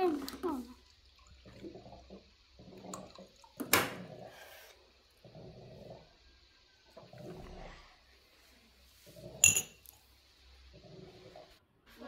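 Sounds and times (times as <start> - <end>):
child gulping water: 0.0 - 6.2, 6.9 - 8.0.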